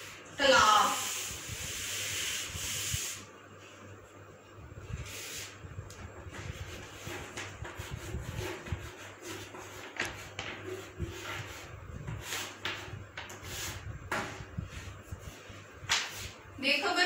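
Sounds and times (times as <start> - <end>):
duster rubbing on chalkboard: 0.4 - 3.3, 6.3 - 16.4.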